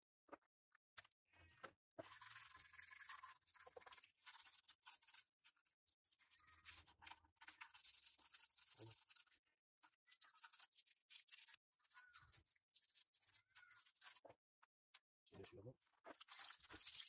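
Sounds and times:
brush scrubbing metal: 2.0s - 14.3s, 16.2s - 17.0s.

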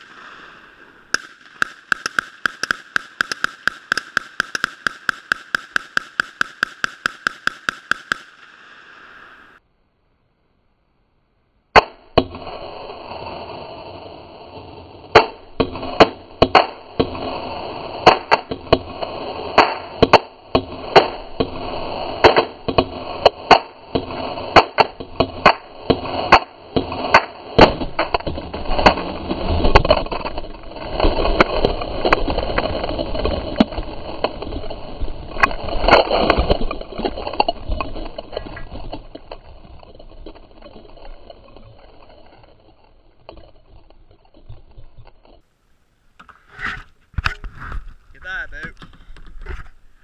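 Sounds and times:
rifle shots: 0.0s - 9.1s, 18.0s - 21.6s.

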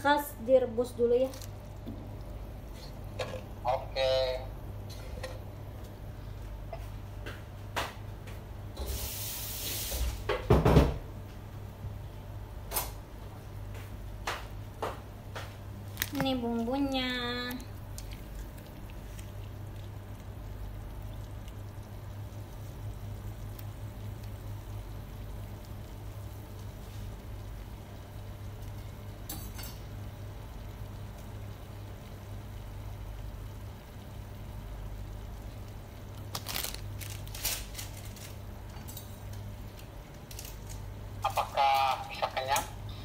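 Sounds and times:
pot boiling on gas burner: 0.0s - 43.0s
sachets rustling: 15.9s - 16.6s, 36.3s - 38.4s.

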